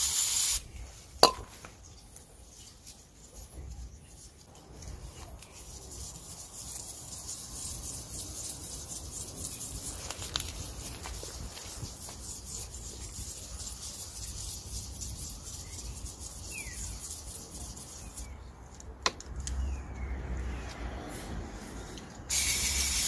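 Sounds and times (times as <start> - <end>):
aerosol spraying hiss: 0.0 - 0.6, 22.3 - 23.0
brush scrubbing metal: 2.5 - 18.4.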